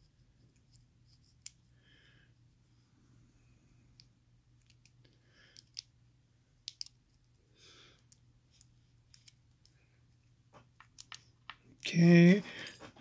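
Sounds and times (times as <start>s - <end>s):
small metal parts clicking: 5.5s - 5.9s, 6.6s - 7.0s.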